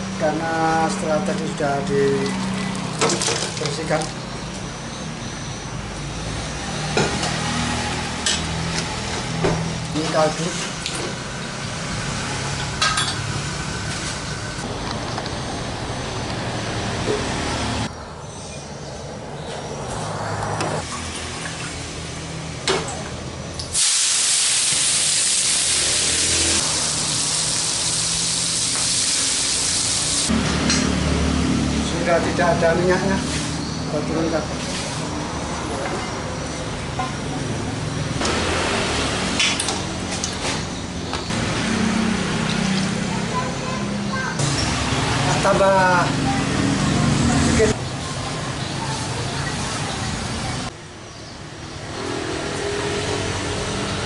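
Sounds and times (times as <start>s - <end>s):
vegetables sizzling in hot oil: 23.7s - 30.3s.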